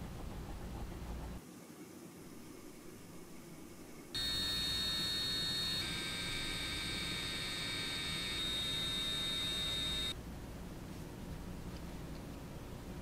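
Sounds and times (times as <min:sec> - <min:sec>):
rotary tool motor whine: 0:04.2 - 0:10.2.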